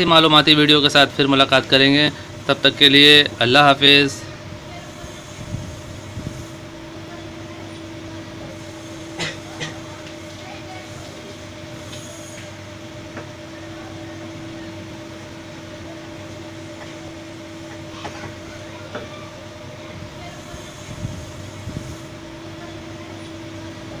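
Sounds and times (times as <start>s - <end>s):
pump motor hum and whine: 0.0s - 24.0s.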